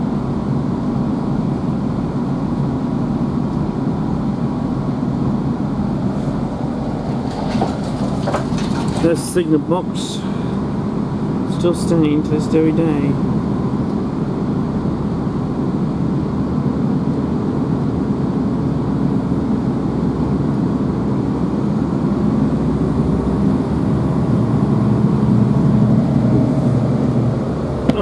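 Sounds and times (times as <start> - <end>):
train diesel engine rumble: 3.3 - 16.5, 20.8 - 28.0
wheels on track: 6.0 - 10.7.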